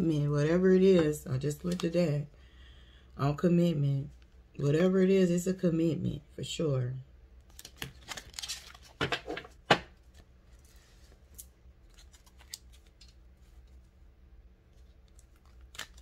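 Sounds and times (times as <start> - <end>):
cards flicking and snapping: 7.4 - 9.9, 15.0 - 16.0.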